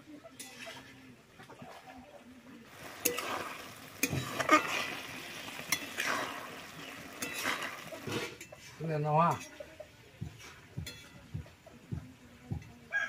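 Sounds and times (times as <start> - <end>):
food frying and sizzling: 0.0 - 1.7, 2.5 - 13.0
metal spatula scraping a wok: 0.3 - 1.0, 2.7 - 9.7.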